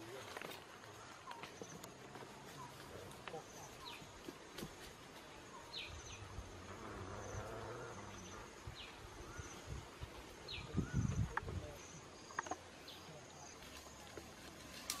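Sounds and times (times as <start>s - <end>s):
insects buzzing and chirping: 0.0s - 15.0s.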